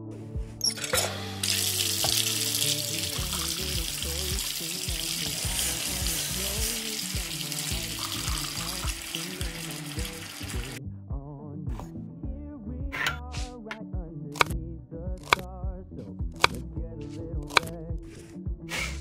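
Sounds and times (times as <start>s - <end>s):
background music: 0.0s - 19.0s
tap water running into sink: 1.0s - 10.8s.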